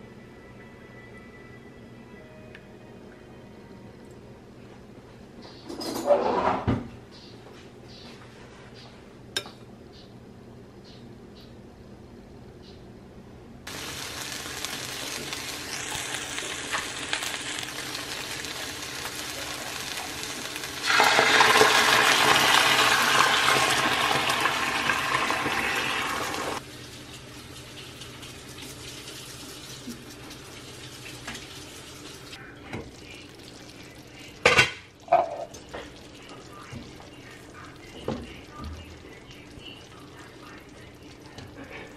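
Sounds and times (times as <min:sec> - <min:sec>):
chicken sizzling in skillet: 0:13.7 - 0:37.9.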